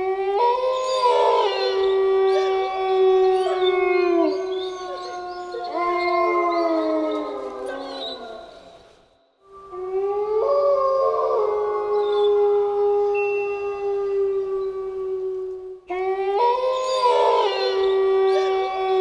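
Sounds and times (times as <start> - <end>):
wolves howling: 0.0 - 19.0.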